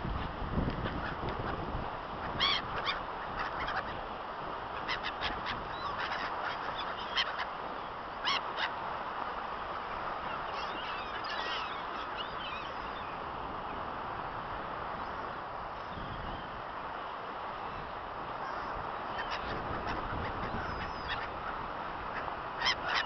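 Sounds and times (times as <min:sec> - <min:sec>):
gulls calling: 0:00.2 - 0:09.2, 0:09.8 - 0:13.8, 0:17.6 - 0:23.0.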